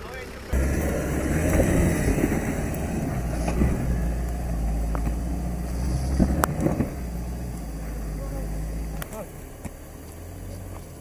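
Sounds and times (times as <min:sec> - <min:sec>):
off-road vehicle engine under load: 0:00.0 - 0:11.0
tyres scrabbling: 0:00.0 - 0:11.0
stones knocking: 0:01.4 - 0:07.2.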